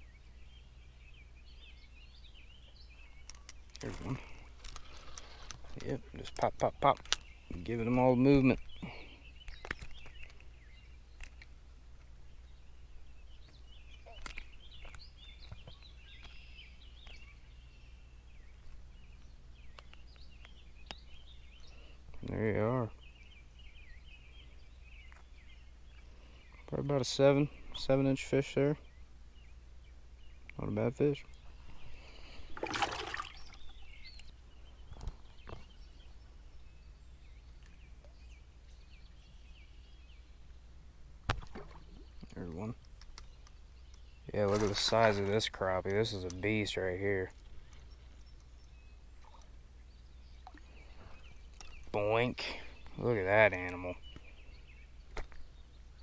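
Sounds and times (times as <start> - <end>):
songbirds chirping and singing: 0.0 - 56.0
fish splashing into bucket: 32.6 - 33.6.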